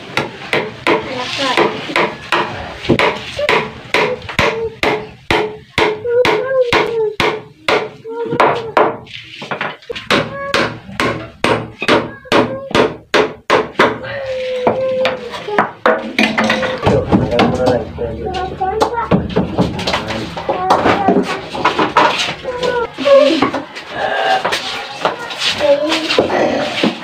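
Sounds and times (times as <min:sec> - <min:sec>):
hammer striking wooden frame: 0:00.2 - 0:14.0.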